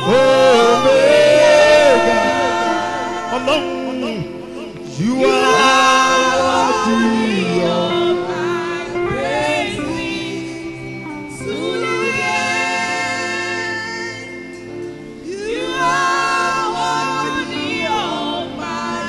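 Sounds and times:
man singing gospel lead: 0:00.0 - 0:10.7, 0:15.2 - 0:19.0
women singing backing vocals: 0:00.0 - 0:14.6, 0:15.2 - 0:19.0.

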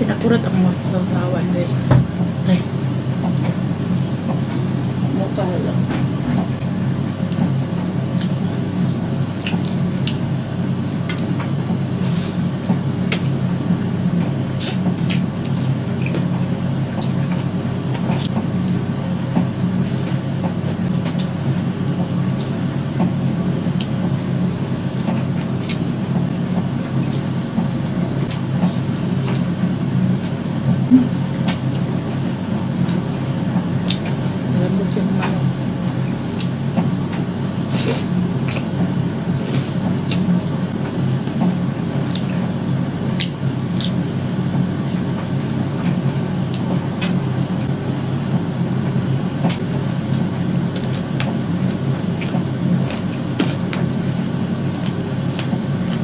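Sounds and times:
low hum: 0:00.0 - 0:56.0
chewing: 0:43.2 - 0:44.0.

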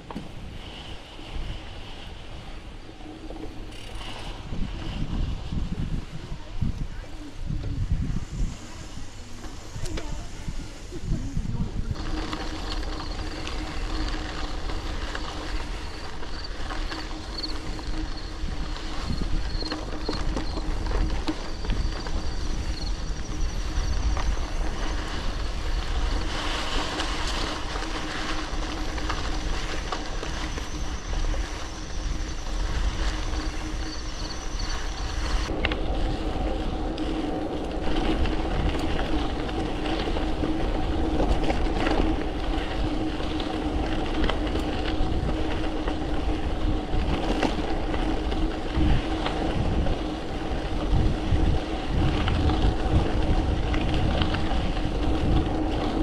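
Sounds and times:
bike tyres rolling on gravel: 0:00.0 - 0:56.0
steady hum from bike: 0:00.0 - 0:56.0
wind on microphone: 0:00.0 - 0:56.0.

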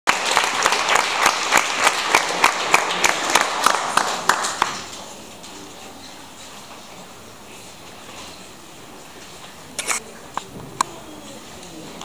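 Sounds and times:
audience applauding: 0:00.1 - 0:05.0
sharp close claps: 0:00.1 - 0:05.0.

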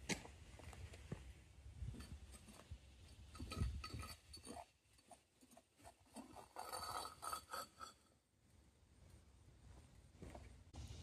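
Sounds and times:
faint clinks and knocks: 0:01.8 - 0:08.2.

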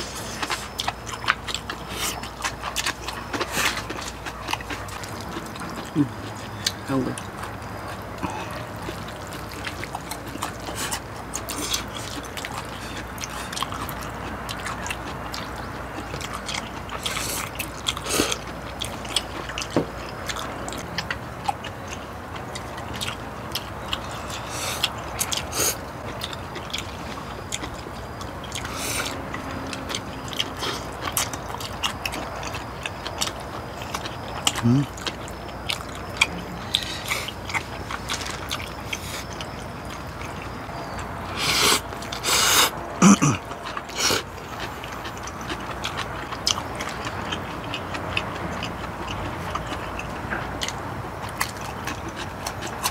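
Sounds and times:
chewing: 0:00.0 - 0:52.9
slurping: 0:33.9 - 0:49.7.

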